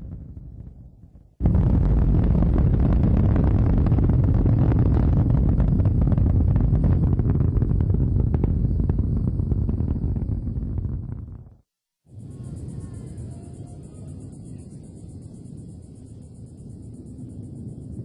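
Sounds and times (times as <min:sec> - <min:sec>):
rocket engine crackling rumble: 0:00.0 - 0:13.2.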